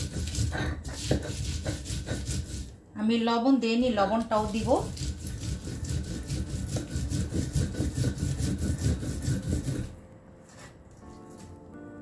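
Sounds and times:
stone rubbing on stone: 0:00.0 - 0:02.7, 0:04.4 - 0:10.6.

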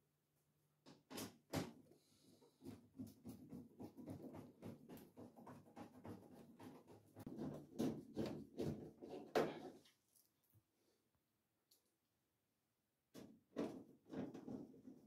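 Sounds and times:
louder knocks on panels: 0:02.6 - 0:09.6.

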